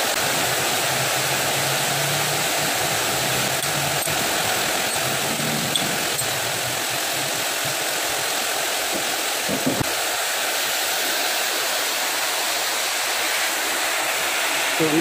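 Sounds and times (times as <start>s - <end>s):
workshop machinery running: 0.0s - 7.5s.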